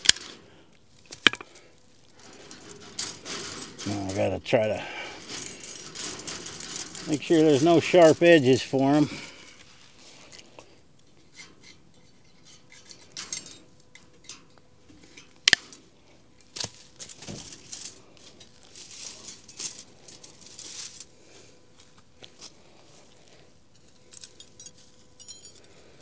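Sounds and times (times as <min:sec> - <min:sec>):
fence wire clinking and rattling: 0:01.1 - 0:09.5, 0:11.1 - 0:21.1, 0:23.7 - 0:25.9.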